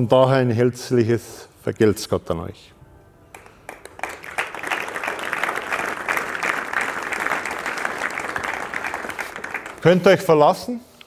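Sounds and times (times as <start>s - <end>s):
audience applauding: 3.3s - 10.4s.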